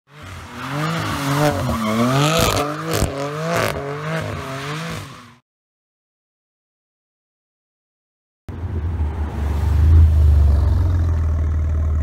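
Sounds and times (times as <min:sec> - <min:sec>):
car engine revving: 0:00.2 - 0:05.3.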